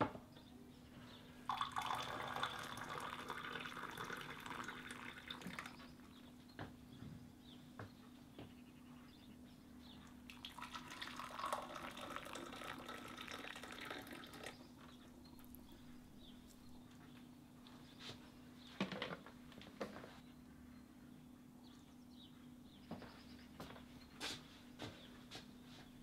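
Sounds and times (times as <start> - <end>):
faint steady hum: 0.0 - 26.0
liquid pouring into cup: 1.5 - 5.8, 10.3 - 14.6.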